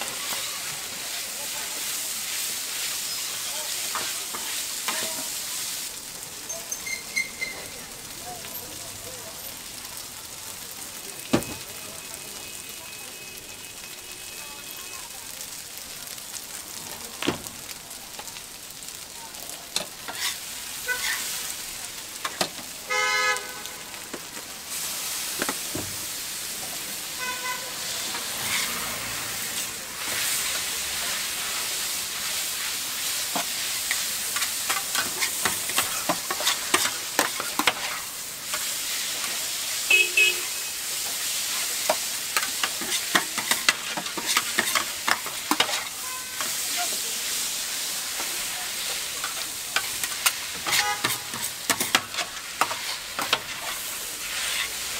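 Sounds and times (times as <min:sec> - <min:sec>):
noodles sizzling on a griddle: 0:00.0 - 0:54.9
metal spatulas scraping and clacking: 0:20.1 - 0:21.3, 0:28.2 - 0:28.8, 0:33.4 - 0:38.7, 0:41.9 - 0:47.0, 0:49.2 - 0:54.8.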